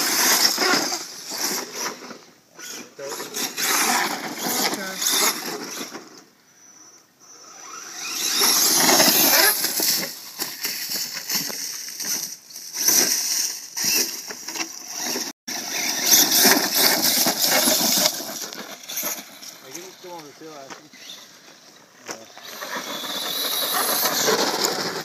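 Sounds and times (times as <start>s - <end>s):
tyres scrabbling through dirt: 0.0s - 6.3s, 7.6s - 25.0s
electric motor whining: 6.6s - 10.7s, 22.3s - 25.0s.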